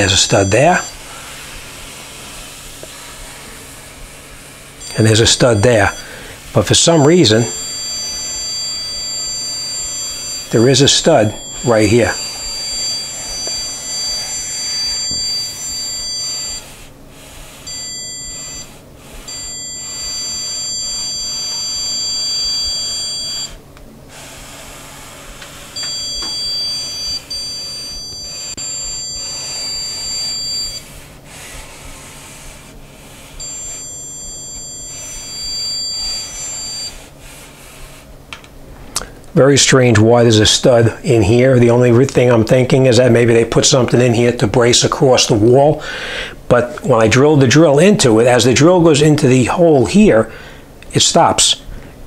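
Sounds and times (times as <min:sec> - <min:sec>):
stud finder high beep: 0:00.0 - 0:01.1, 0:04.8 - 0:16.8, 0:17.5 - 0:23.6, 0:25.4 - 0:31.0, 0:33.2 - 0:37.1.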